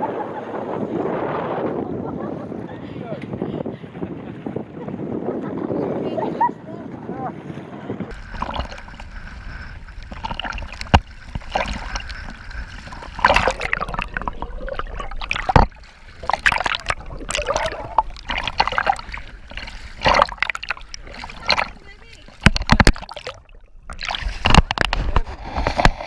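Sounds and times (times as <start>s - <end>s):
water splashing and sloshing: 6.4s - 26.0s.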